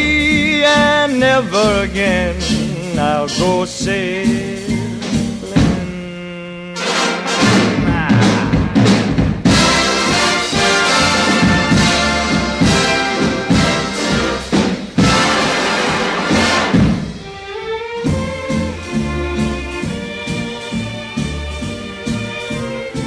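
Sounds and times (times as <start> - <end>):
brass and orchestra music: 6.7 - 23.0.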